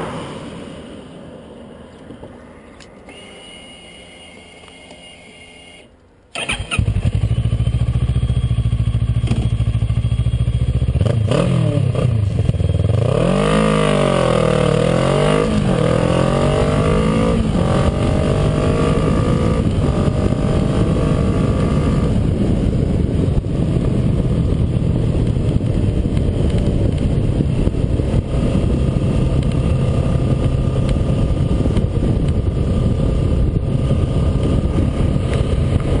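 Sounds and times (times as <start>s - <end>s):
motorbike engine revving: 3.2s - 22.9s.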